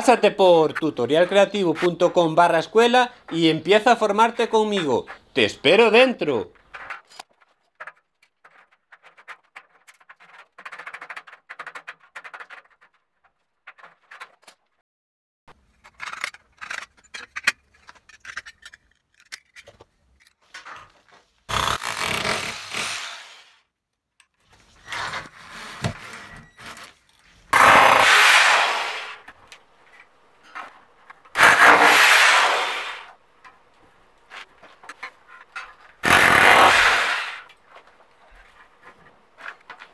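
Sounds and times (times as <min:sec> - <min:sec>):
cordless drill driving screws: 0:21.6 - 0:23.5, 0:36.0 - 0:37.5
snips cutting steel: 0:31.4 - 0:33.0, 0:36.0 - 0:37.5.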